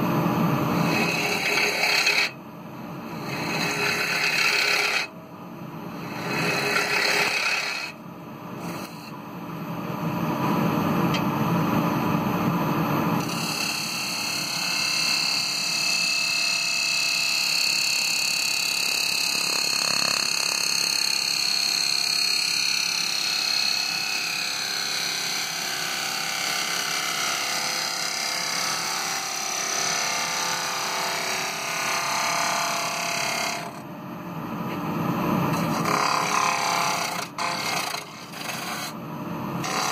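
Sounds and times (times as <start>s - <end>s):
gouge scraping wood on a lathe: 0.8s - 2.3s, 3.2s - 5.1s, 6.1s - 7.9s, 8.6s - 9.1s, 13.2s - 14.0s, 33.1s - 33.8s, 35.6s - 38.9s, 39.6s - 39.9s
high whine: 8.0s - 13.2s.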